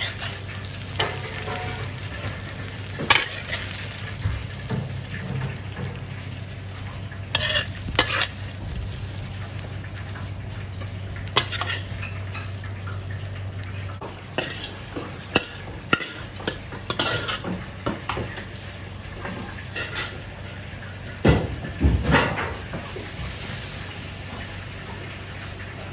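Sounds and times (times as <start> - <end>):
utensils clinking against pan: 0.0 - 6.1, 7.3 - 13.0, 14.4 - 18.5, 19.3 - 20.2
frying sizzle: 0.0 - 25.9.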